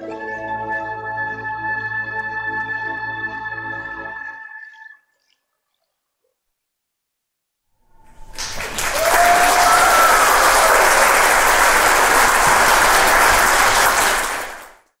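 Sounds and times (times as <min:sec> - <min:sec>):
audience applauding: 0:08.1 - 0:15.0.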